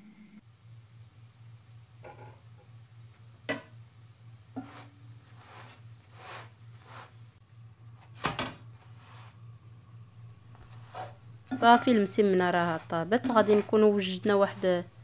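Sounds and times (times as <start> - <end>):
steady low hum: 0.0 - 15.0
metal spatula scraping frying pan: 4.6 - 7.1, 10.7 - 14.7.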